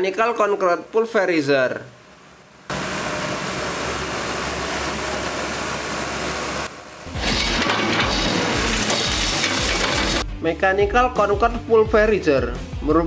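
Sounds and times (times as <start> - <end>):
machine hum: 2.0 - 10.2
excavator running: 2.7 - 10.3
concrete crunching and crackling: 7.1 - 10.2.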